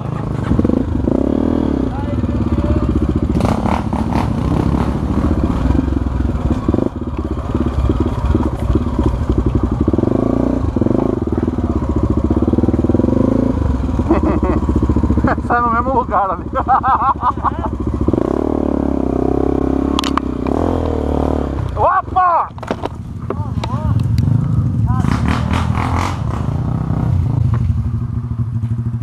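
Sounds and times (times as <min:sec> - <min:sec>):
motorcycle engine running: 0:00.0 - 0:29.0
bike rattling over bumps: 0:01.9 - 0:13.0, 0:22.2 - 0:26.8.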